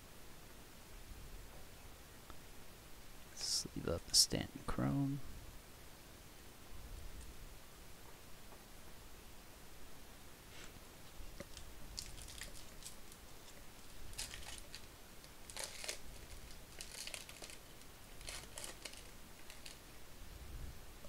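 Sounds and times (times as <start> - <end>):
foil wrapper crinkling and tearing: 11.4 - 19.8.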